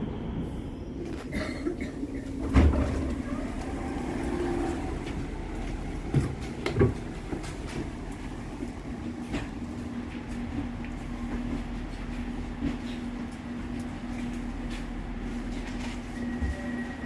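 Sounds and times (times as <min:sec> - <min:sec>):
doors opening thump: 0:02.4 - 0:03.2.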